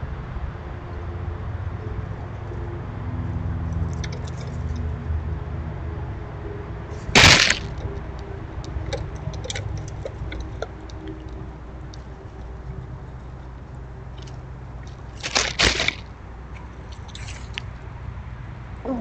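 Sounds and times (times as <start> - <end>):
squirrels rustling through seed hulls: 6.9 - 8.0, 14.1 - 17.7
light clicks and crackles: 14.1 - 17.8.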